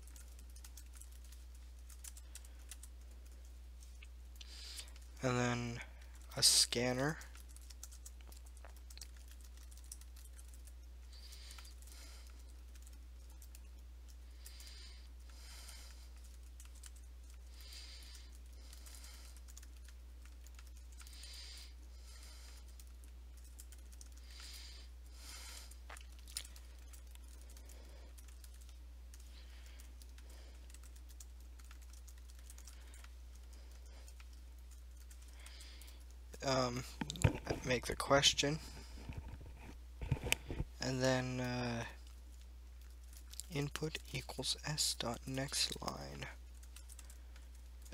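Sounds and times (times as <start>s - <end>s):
computer keyboard keystrokes: 0.0s - 3.4s, 7.2s - 13.8s, 15.9s - 21.3s, 22.5s - 24.6s, 26.0s - 36.0s, 46.6s - 47.9s
steady low hum: 0.0s - 47.9s.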